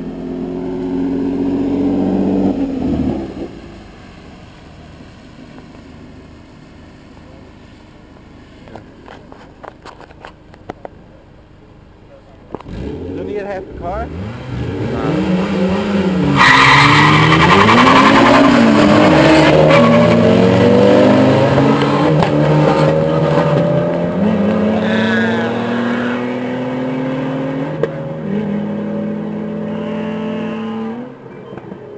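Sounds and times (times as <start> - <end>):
car engines revving: 0.0 - 31.9
tyres spinning and screeching: 14.4 - 26.0.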